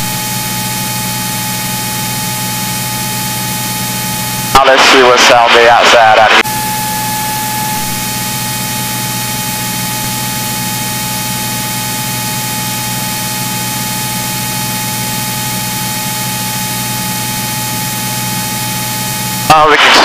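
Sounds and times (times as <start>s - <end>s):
aircraft engine and propeller drone: 0.0s - 20.0s
steady high tone: 2.8s - 11.8s.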